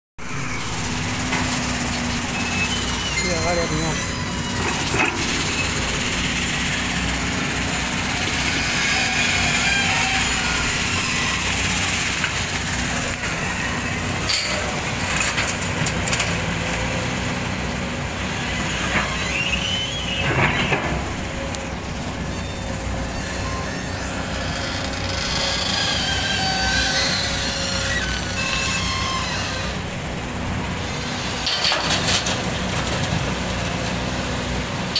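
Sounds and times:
excavator diesel engine running: 0.2s - 34.9s.

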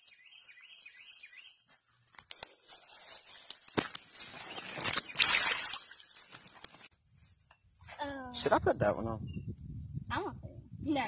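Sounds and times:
bird chirping: 0.0s - 1.7s
rustling in grass: 1.7s - 7.4s.

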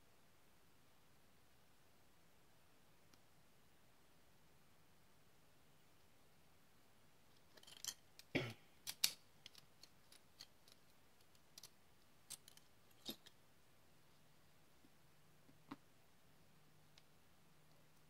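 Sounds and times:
padlock parts clicking: 7.4s - 13.3s.

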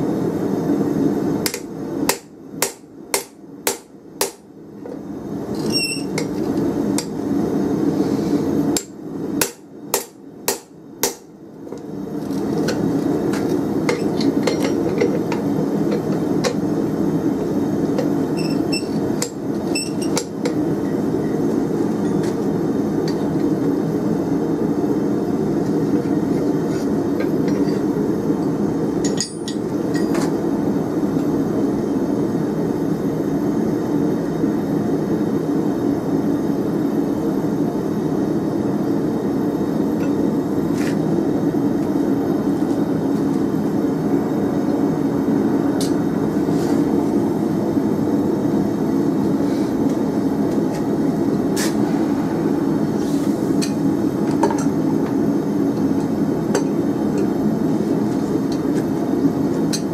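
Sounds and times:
hammer striking hot steel: 1.4s - 4.5s, 5.9s - 7.2s, 8.7s - 11.9s, 18.0s - 20.6s, 29.0s - 30.3s
steady even noise: 50.9s - 54.3s.

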